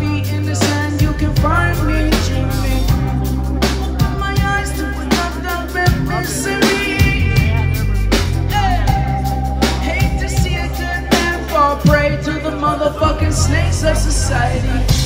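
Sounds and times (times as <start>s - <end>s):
drum kit: 0.0s - 15.0s
heavy bass: 0.0s - 15.0s
person singing: 0.0s - 15.0s.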